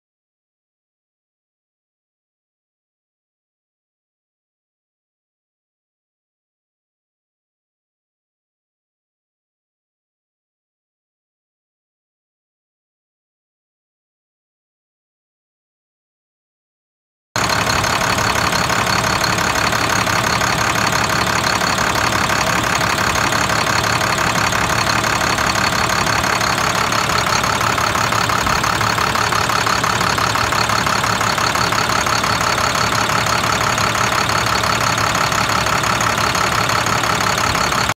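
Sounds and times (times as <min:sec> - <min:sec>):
diesel engine idling: 0:17.4 - 0:37.9.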